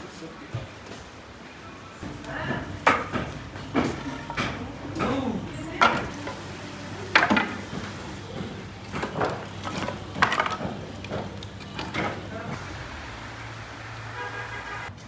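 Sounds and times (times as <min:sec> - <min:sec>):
firewood knocking and clattering: 0:02.0 - 0:12.6.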